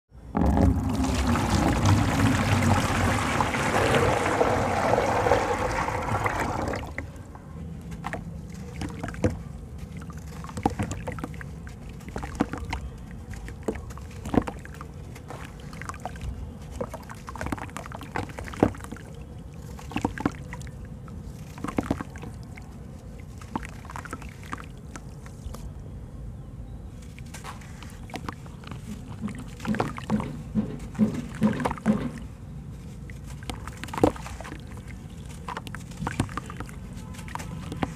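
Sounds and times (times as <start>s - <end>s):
pieces splashing into water: 0.4s - 7.1s, 33.3s - 37.9s
water being poured: 0.4s - 7.2s, 33.1s - 37.9s.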